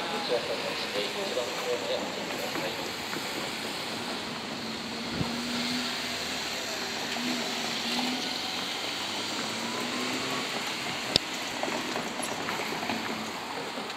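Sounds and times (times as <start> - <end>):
faint electric train hum: 0.0 - 13.9.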